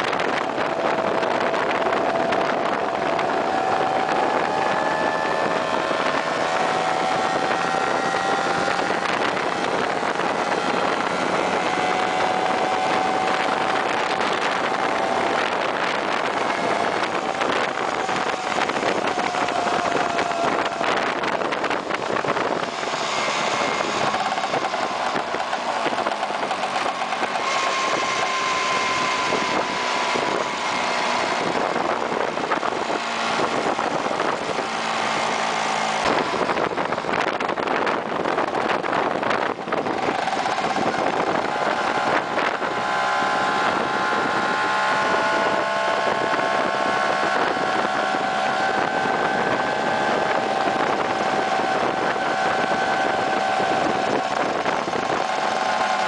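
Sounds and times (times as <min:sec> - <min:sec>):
road noise: 0:00.0 - 0:56.0
scooter engine running: 0:00.0 - 0:56.0
wind noise: 0:00.0 - 0:56.0.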